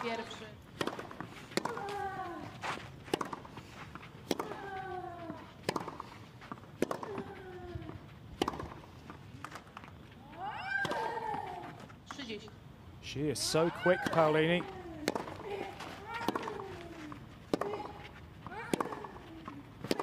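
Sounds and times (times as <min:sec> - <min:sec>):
racket hitting tennis ball: 0:00.7 - 0:09.8, 0:13.9 - 0:20.0.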